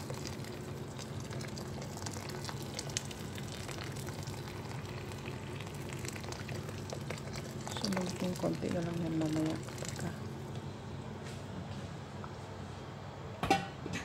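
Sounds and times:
water pouring into a pot: 0.0 - 10.4
soup boiling and bubbling: 0.0 - 12.6
steady low hum: 0.0 - 14.0.

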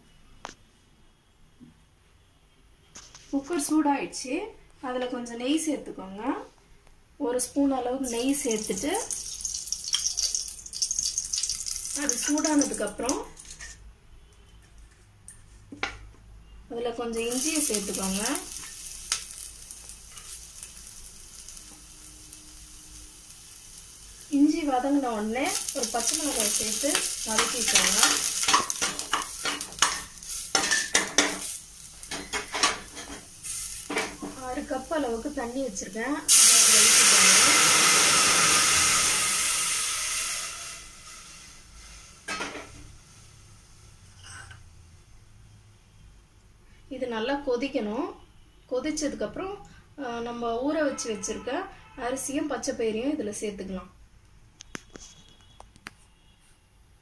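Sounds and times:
ginger sizzling in hot fat: 8.0 - 13.8, 17.1 - 44.1.

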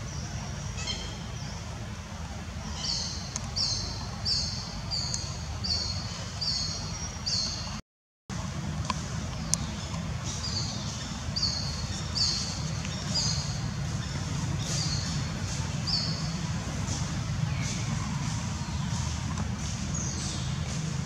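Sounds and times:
bird chirping: 9.4 - 19.2.

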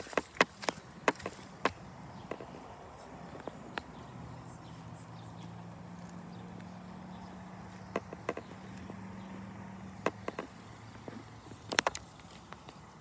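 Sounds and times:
sharp clicks and taps: 7.9 - 9.0, 10.0 - 12.8.

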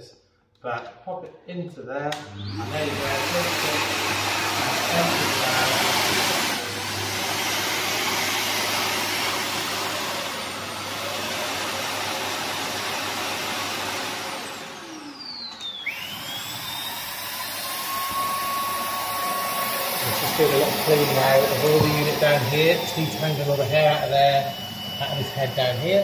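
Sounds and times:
vacuum station roar: 2.1 - 26.0
falling whine: 14.4 - 26.0
high steady whine: 15.7 - 26.0.

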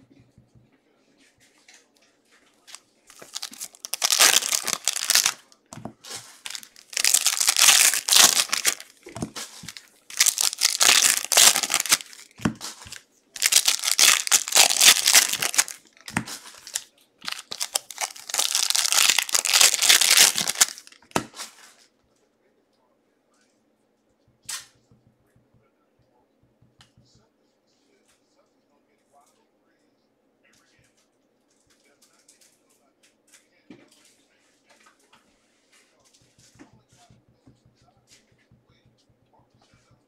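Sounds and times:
wrappers tearing and crinkling: 2.7 - 21.8.

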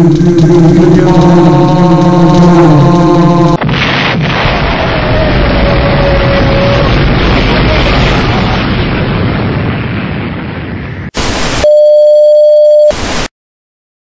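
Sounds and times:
explosion rumble: 0.0 - 11.6
tv static: 11.2 - 11.8, 12.8 - 13.3
loud steady beep tone: 11.6 - 13.1.

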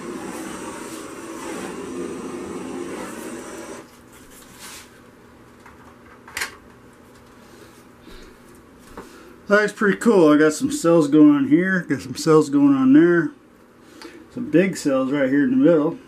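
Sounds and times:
heat gun blowing: 0.0 - 3.9.

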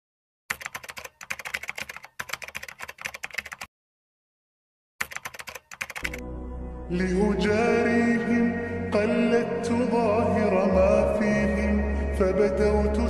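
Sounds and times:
keyboard typing clicks: 0.5 - 3.7, 5.0 - 6.2.

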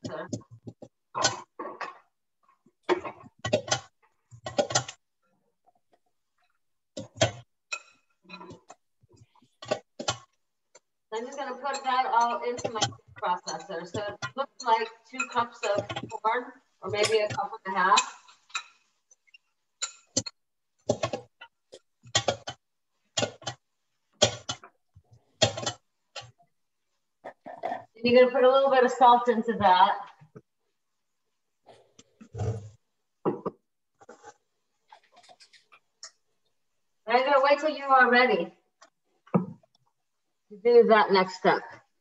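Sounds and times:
kitchen knocks and clatters: 0.0 - 5.0, 6.4 - 26.4, 31.8 - 36.2, 38.8 - 39.8.

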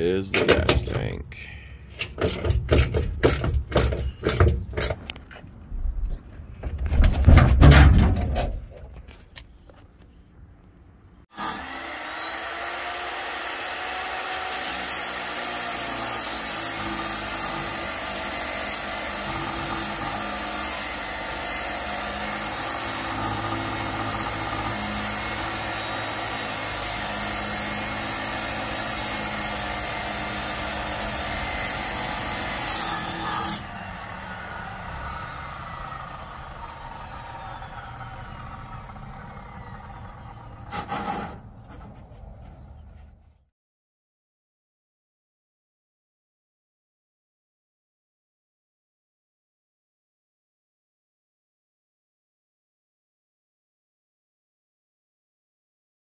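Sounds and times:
machine winding down whine: 34.3 - 40.7.

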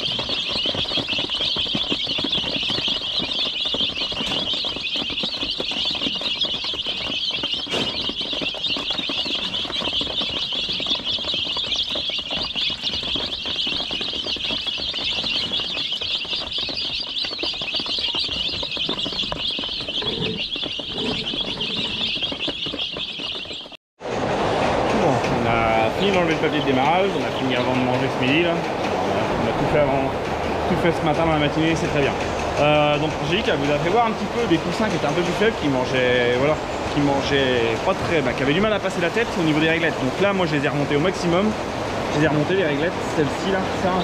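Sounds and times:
chicks peeping: 0.0 - 23.8, 25.4 - 44.0.

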